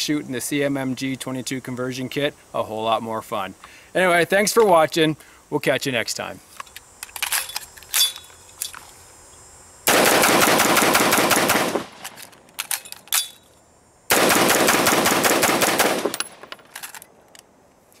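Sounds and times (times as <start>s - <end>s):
rapid automatic gunfire: 9.9s - 11.9s, 14.1s - 16.2s.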